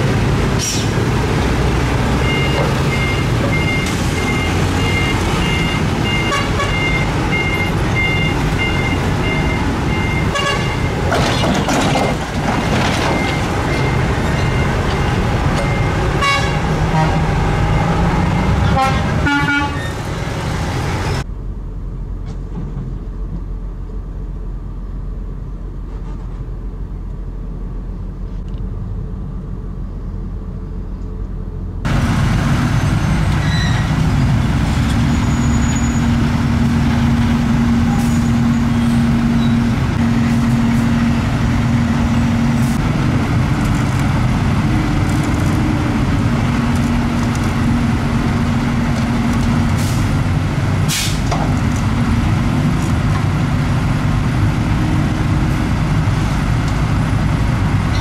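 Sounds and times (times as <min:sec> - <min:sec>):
truck engine humming: 0:00.0 - 0:22.3, 0:26.6 - 0:58.0
road traffic: 0:00.0 - 0:58.0
air brake hiss: 0:50.9 - 0:51.3.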